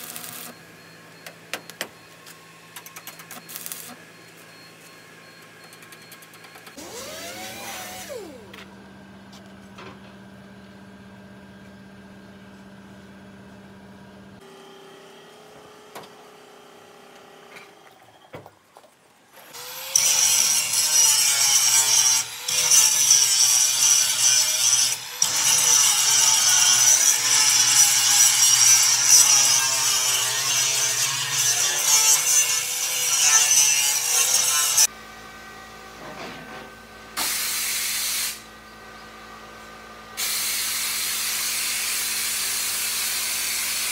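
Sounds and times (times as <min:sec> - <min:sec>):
angle grinder on steel: 0:06.8 - 0:08.6, 0:19.4 - 0:34.9.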